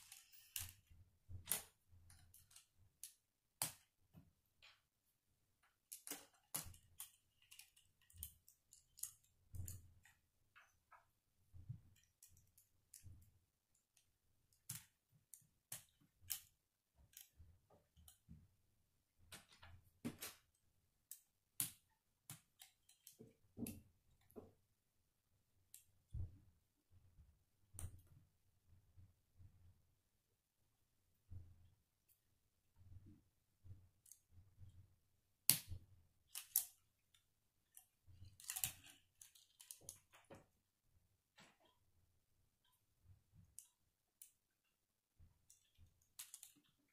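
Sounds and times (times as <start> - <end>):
plastic construction pieces clicking: 5.8 - 10.2, 14.5 - 18.2, 36.3 - 40.3, 45.4 - 46.8.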